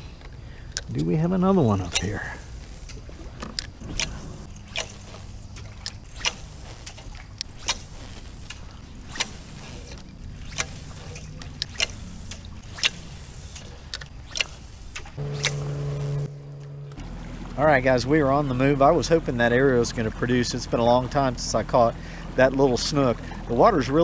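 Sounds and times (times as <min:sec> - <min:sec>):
motor humming: 0:15.2 - 0:17.9.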